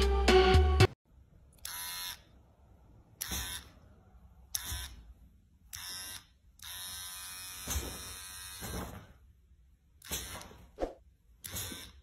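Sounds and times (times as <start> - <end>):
electric hair clipper buzzing: 1.6 - 2.2, 5.8 - 8.6.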